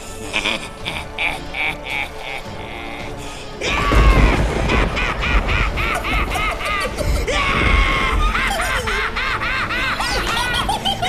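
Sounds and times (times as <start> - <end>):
music: 0.0 - 11.0
cartoon alien voice laughing: 3.6 - 11.0.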